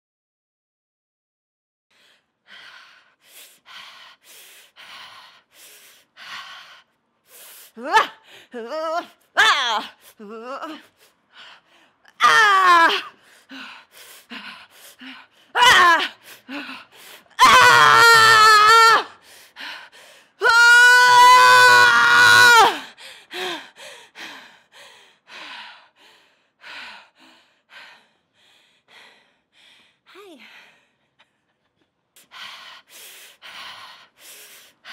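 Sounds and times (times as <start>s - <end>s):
sharp breaths and gasps: 1.9s - 8.5s, 13.1s - 17.4s, 19.1s - 20.4s, 22.8s - 34.9s
woman screaming: 8.7s - 9.9s, 12.2s - 13.1s, 15.6s - 16.1s, 17.4s - 19.1s, 20.4s - 22.8s.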